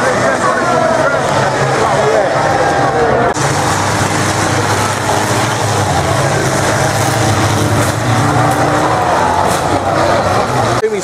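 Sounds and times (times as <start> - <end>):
racing car engines droning: 0.0 - 11.0.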